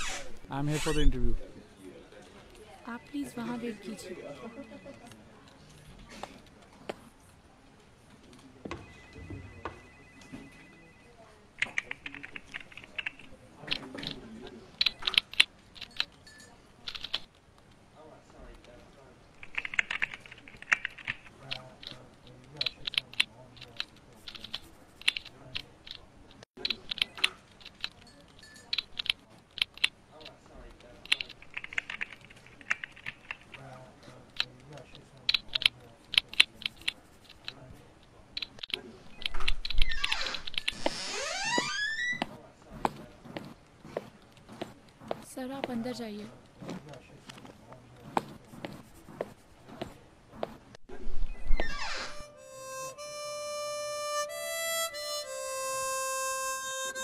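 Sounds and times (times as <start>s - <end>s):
typing on computer keyboard: 11.6s - 14.2s, 14.8s - 17.3s, 19.4s - 26.0s, 26.6s - 30.4s, 31.0s - 34.7s, 35.3s - 37.6s.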